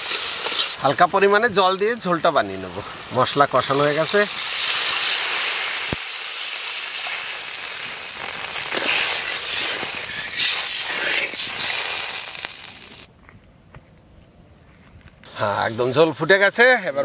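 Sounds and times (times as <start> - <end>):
water sizzling in hot wok: 0.0 - 13.1.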